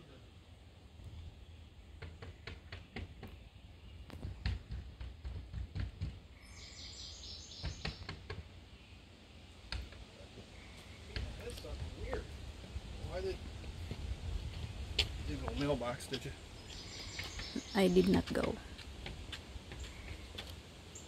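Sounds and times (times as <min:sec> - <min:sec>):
high chirping: 0:16.6 - 0:18.5.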